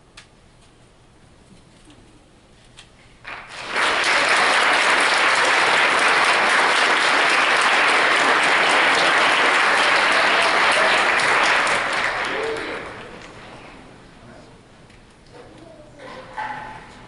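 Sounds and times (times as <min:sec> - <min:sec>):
audience applauding: 0:03.2 - 0:13.5.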